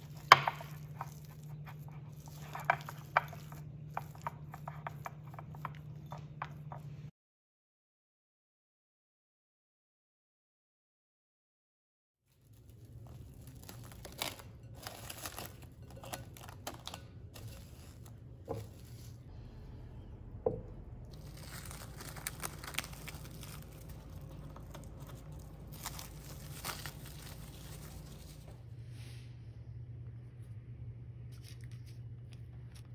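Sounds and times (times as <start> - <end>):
plastic cling wrap crinkling: 12.3 - 19.2, 21.1 - 28.6.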